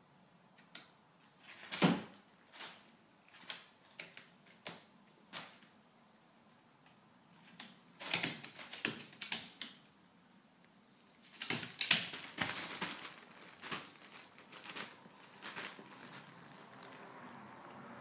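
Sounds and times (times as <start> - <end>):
dog claws clicking: 7.4 - 9.9, 11.2 - 16.9
collar tag jingling: 11.3 - 17.1.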